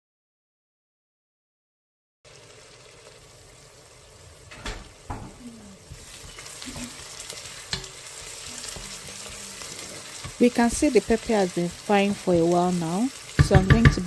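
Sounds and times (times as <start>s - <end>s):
pepper and onions sizzling in oil: 2.3s - 14.0s
wooden spoon stirring in a pot: 5.8s - 14.0s
spoon knocking against pot: 13.3s - 14.0s.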